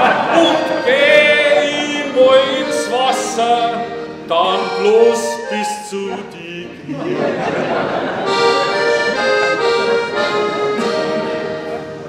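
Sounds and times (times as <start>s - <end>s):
accordion: 0.0s - 12.0s
man singing: 0.2s - 7.0s.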